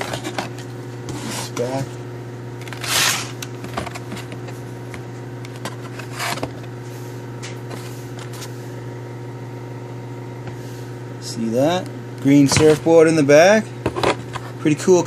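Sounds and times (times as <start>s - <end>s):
steady low hum: 0.0s - 15.0s
cardboard rustling scrapes: 2.7s - 4.3s, 5.7s - 6.6s.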